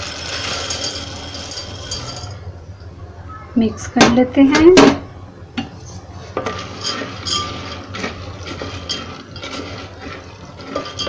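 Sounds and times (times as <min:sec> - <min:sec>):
spatula scraping in syrup: 0:05.8 - 0:11.0.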